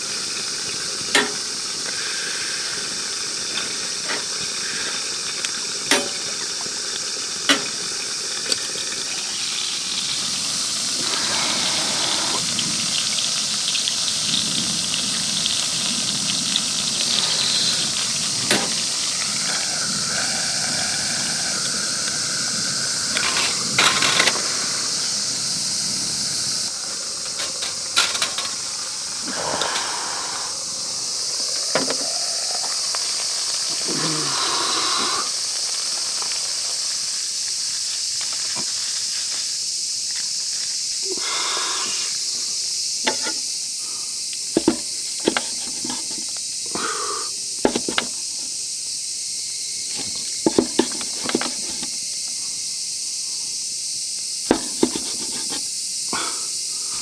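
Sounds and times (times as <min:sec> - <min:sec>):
steady high hiss: 0:00.0 - 0:57.0
utensils knocking on grill press: 0:01.1 - 0:01.4, 0:05.9 - 0:06.4, 0:44.6 - 0:46.2, 0:47.6 - 0:48.1, 0:54.5 - 0:55.6.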